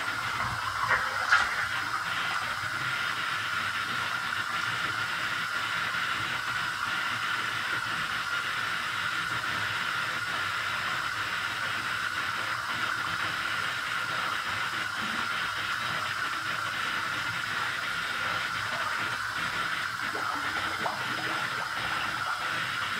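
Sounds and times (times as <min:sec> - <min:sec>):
bathtub tap running: 0:00.0 - 0:03.1, 0:14.1 - 0:22.9.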